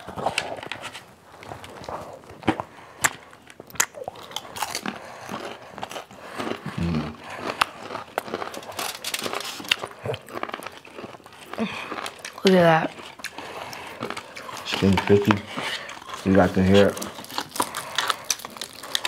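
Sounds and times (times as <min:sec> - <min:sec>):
crunchy chewing: 0:01.3 - 0:19.0.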